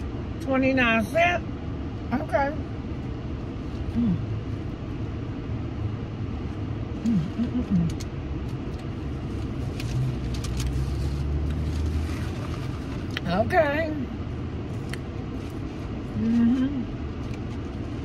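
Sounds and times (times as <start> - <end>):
person humming: 7.0 - 7.9, 16.2 - 16.9
paper wrapper crinkling: 9.4 - 13.1.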